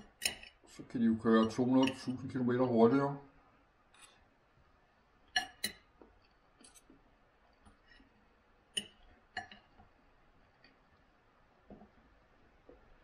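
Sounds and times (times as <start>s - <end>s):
knife and fork clinking on plate: 0.0s - 0.6s, 1.3s - 2.1s, 5.3s - 5.9s.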